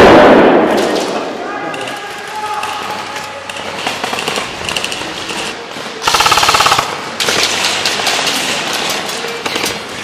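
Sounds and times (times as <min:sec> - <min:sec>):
airsoft rifle firing: 0:06.0 - 0:07.8.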